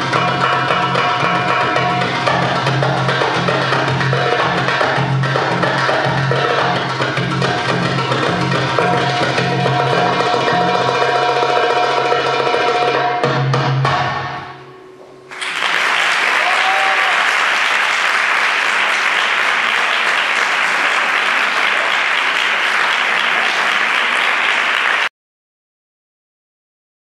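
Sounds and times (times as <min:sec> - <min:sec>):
belly dance music: 0:00.0 - 0:14.3
drum strikes: 0:00.0 - 0:15.6
audience applauding: 0:15.3 - 0:25.1.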